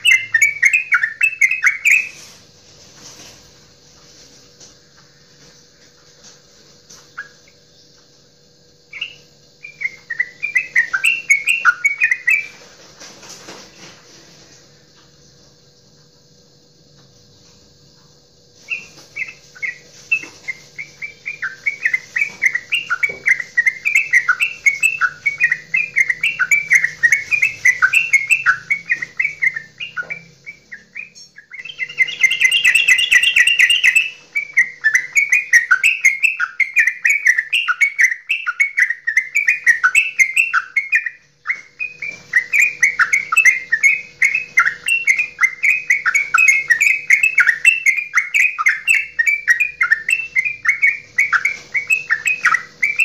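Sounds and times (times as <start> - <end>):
bird singing bubbling chirps: 0.0 - 2.2, 7.0 - 12.6, 18.6 - 53.0.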